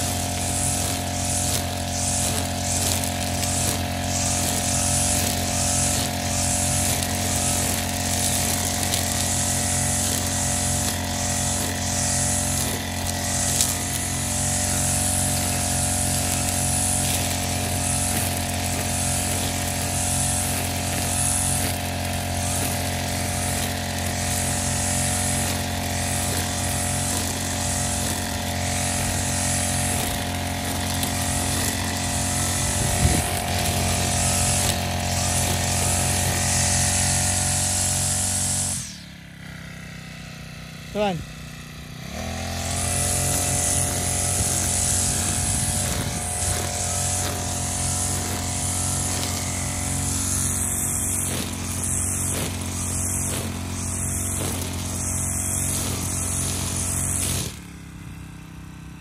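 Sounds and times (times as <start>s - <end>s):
brush cutter engine running: 0.0s - 59.0s.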